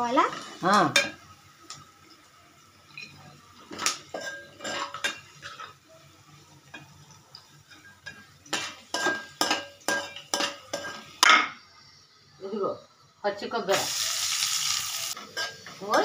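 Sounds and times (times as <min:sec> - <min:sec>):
metal spoon scraping metal pan: 0:03.0 - 0:05.8, 0:07.7 - 0:11.2, 0:15.0 - 0:16.0.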